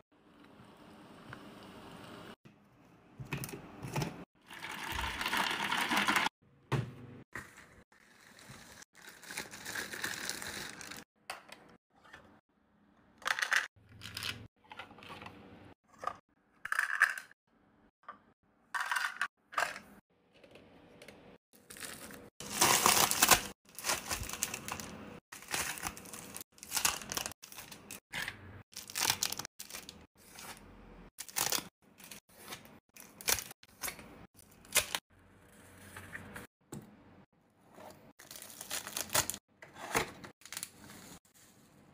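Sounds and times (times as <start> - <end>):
packaging tearing and crinkling: 9.0 - 11.0, 21.6 - 27.9, 28.8 - 30.0, 38.2 - 39.4.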